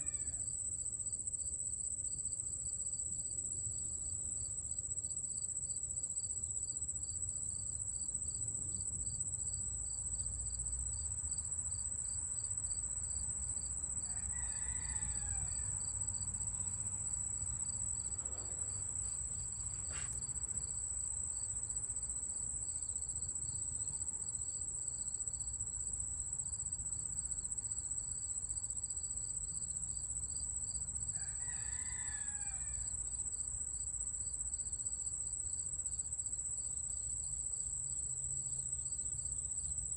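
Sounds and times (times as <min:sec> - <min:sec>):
insect high-pitched trill: 0:30.7 - 0:33.4.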